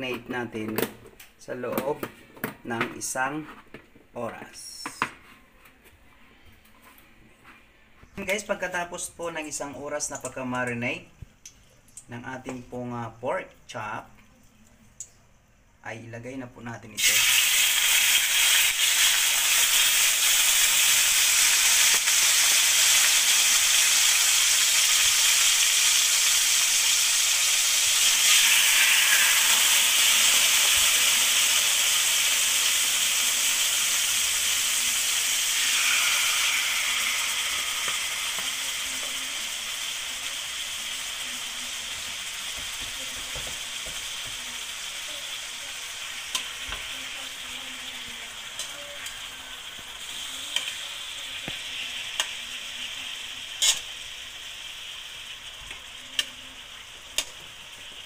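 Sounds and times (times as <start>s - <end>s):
pork chops sizzling in hot oil: 16.9s - 58.0s.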